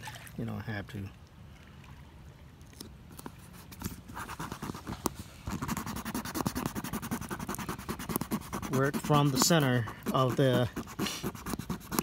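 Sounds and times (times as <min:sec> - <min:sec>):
fingers rubbing a patch: 0:03.6 - 0:12.0.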